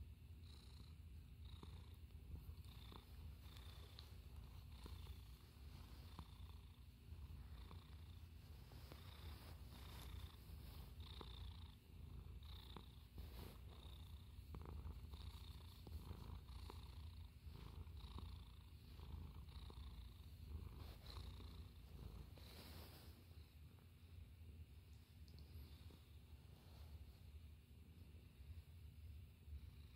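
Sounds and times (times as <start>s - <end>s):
cat purring: 0.0s - 29.9s
fur rustling as stroked: 8.2s - 11.2s, 20.6s - 23.2s.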